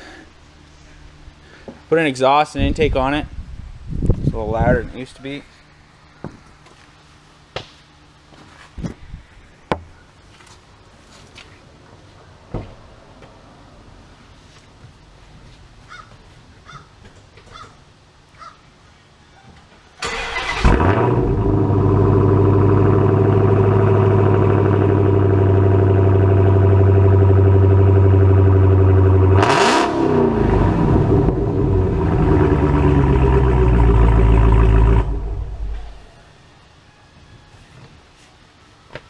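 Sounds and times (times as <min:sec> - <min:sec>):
car engine cranking and idling: 0:20.0 - 0:36.1.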